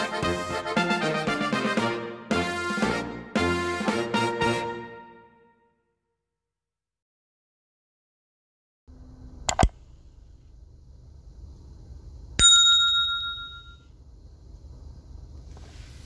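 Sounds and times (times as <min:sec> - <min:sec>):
bright bell ding: 0:12.4 - 0:13.9.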